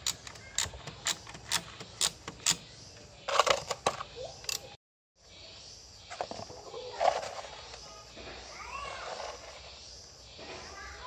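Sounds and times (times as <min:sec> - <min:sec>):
ratchet wrench clicking: 0:00.0 - 0:02.7.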